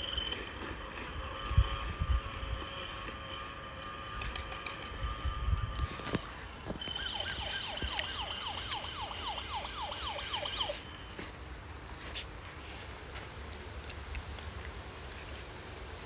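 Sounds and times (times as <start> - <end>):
electronic toy siren: 0.0 - 11.3.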